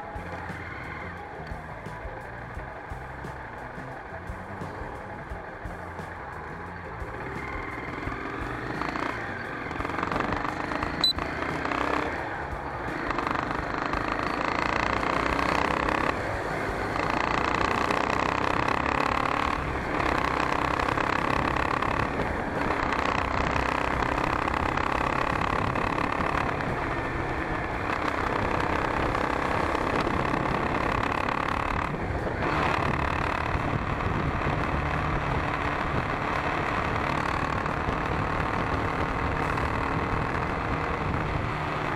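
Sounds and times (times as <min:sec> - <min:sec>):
motorcycle engine running: 0:00.0 - 0:41.9.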